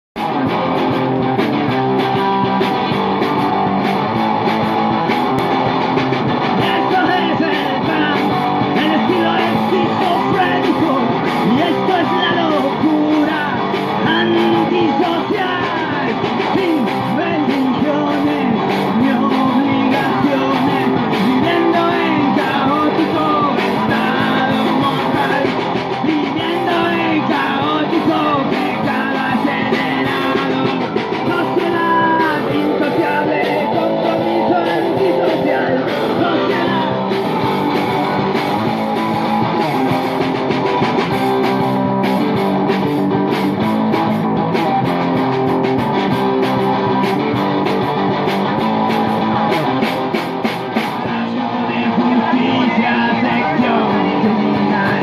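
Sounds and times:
drum kit: 0.2s - 55.0s
strummed guitar: 0.2s - 55.0s
man singing into microphone: 6.6s - 37.2s, 51.0s - 55.0s.

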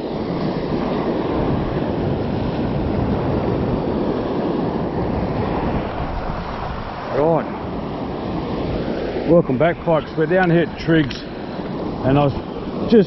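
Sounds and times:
small waves breaking on sand: 0.0s - 13.0s
wind blowing on microphone: 0.0s - 13.0s.

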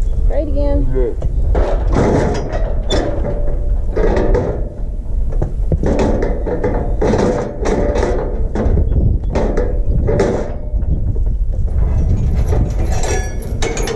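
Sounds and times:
steady low rumble: 0.0s - 13.9s
steel chute rattling and clanking: 1.5s - 13.9s.

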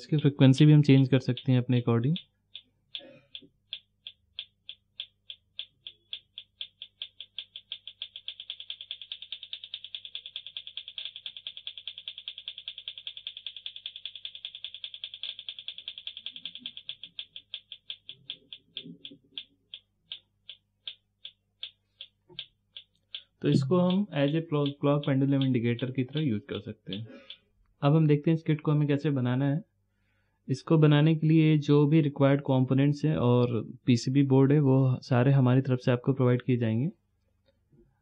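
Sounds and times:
electronic clock clicks: 0.0s - 27.5s.

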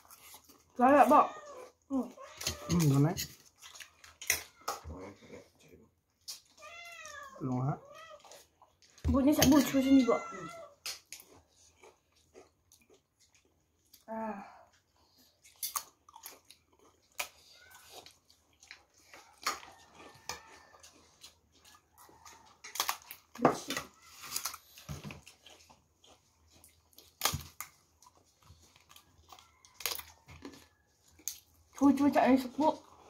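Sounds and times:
wet chewing and biting: 0.0s - 0.9s, 1.5s - 5.1s, 6.0s - 14.1s, 14.7s - 33.0s
crisp cracker crunching: 15.5s - 31.7s.

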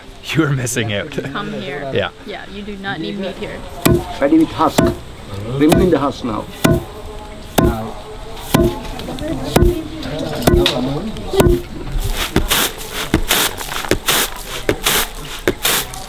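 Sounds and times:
pestle pounding in mortar: 3.8s - 5.1s, 5.7s - 6.0s, 6.6s - 6.9s, 7.6s - 7.9s, 8.5s - 8.9s, 9.6s - 10.8s, 11.4s - 15.8s
rice grains swishing on tray: 12.0s - 16.0s.

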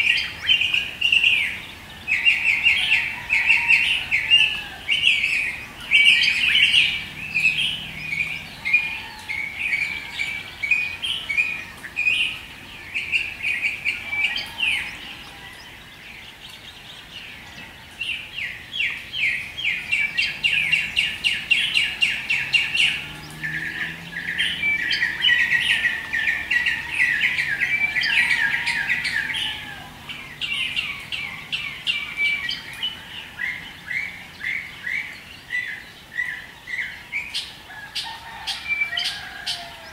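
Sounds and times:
birds chirping and trilling: 0.0s - 39.9s.

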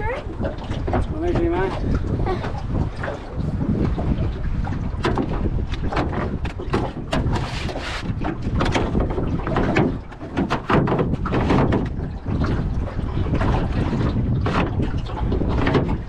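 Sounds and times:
water slapping boat hull: 0.0s - 16.0s
wind buffeting microphone: 0.0s - 16.0s
irregular knocks: 8.3s - 12.0s.

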